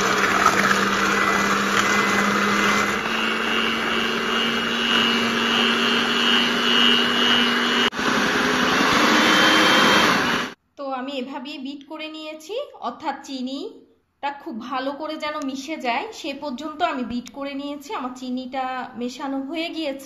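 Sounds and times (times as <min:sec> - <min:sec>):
electric hand mixer whisking: 0:00.0 - 0:10.6.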